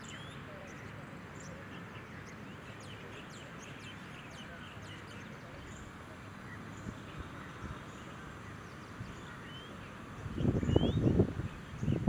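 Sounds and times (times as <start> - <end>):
small birds chirping: 0.0 - 12.0
steady outdoor hiss: 0.0 - 12.0
wind buffeting microphone: 10.1 - 12.0.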